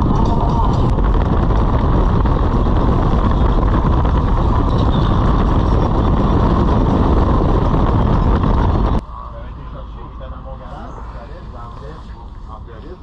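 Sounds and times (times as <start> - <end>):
wind noise: 0.0 - 9.5
motorcycle engine rumble: 0.0 - 13.0
road noise: 0.0 - 13.0.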